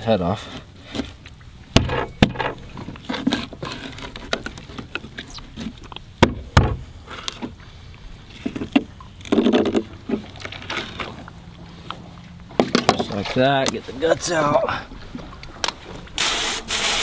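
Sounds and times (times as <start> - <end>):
sharp knocks: 1.8 - 2.6.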